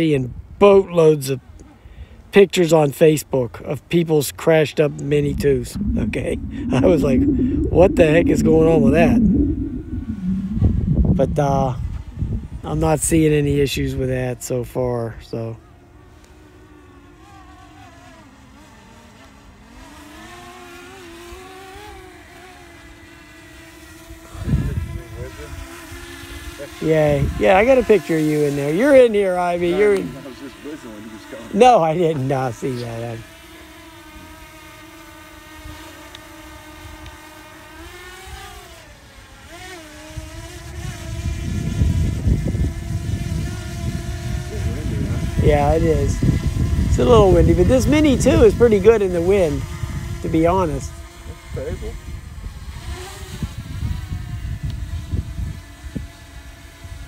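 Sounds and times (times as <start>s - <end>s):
wind buffeting microphone: 4.9s - 14.0s, 40.2s - 50.8s
drone propellers whining: 5.0s - 13.1s.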